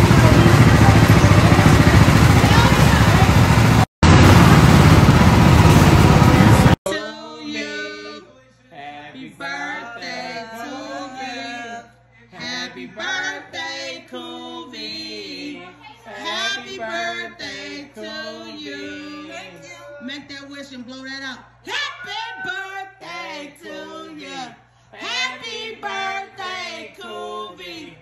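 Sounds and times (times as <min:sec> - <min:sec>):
group singing: 0:06.1 - 0:20.1, 0:21.7 - 0:28.0.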